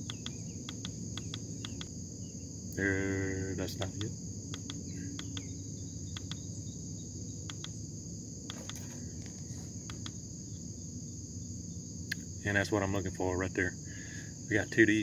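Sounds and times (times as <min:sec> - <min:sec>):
short light clicks: 0:00.0 - 0:01.9, 0:04.0 - 0:05.5, 0:06.1 - 0:06.4, 0:07.5 - 0:07.8, 0:09.9 - 0:10.2
insect chorus buzzing: 0:00.0 - 0:15.0
low steady hum: 0:00.0 - 0:15.0.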